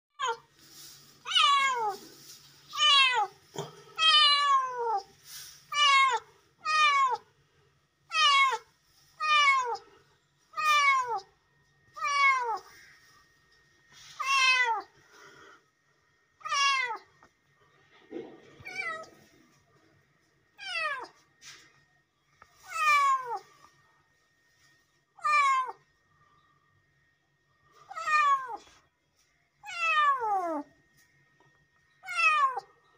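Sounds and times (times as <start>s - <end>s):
kitten meowing: 25.2s - 25.8s.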